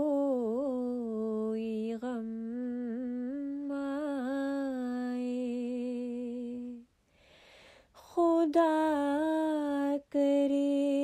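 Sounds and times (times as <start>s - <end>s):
person singing unaccompanied: 0.0s - 6.8s, 8.0s - 11.0s.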